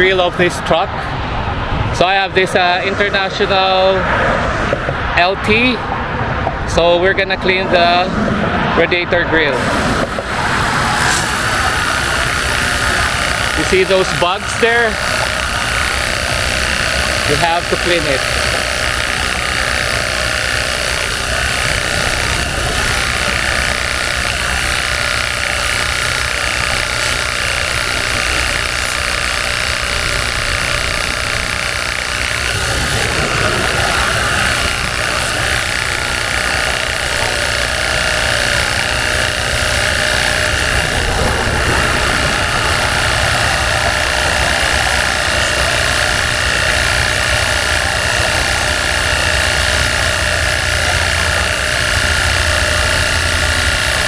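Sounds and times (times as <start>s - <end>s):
pressure washer pump whirring: 0.0s - 54.0s
water spray hissing on metal grille: 20.9s - 39.6s.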